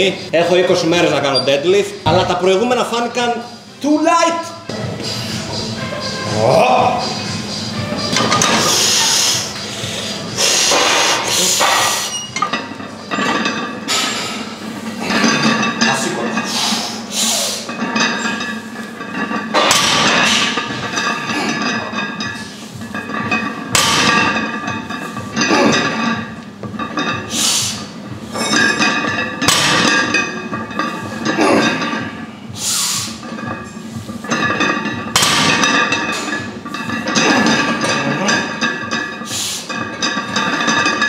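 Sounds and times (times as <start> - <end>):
music playing: 4.4 - 13.2.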